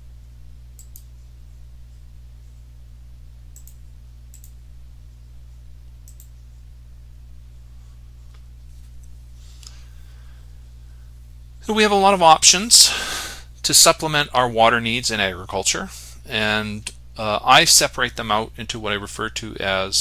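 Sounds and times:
low electrical hum: 0:00.0 - 0:20.0
computer mouse clicks: 0:00.8 - 0:01.1, 0:03.6 - 0:04.6, 0:06.0 - 0:06.4.

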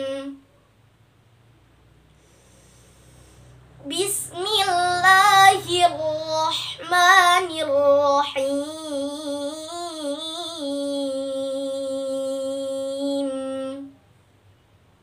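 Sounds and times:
girl chanting recitation: 0:00.0 - 0:00.5, 0:03.8 - 0:14.0.

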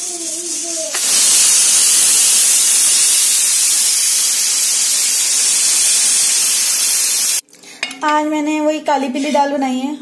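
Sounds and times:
pressure cooker hissing steam: 0:00.0 - 0:07.4.

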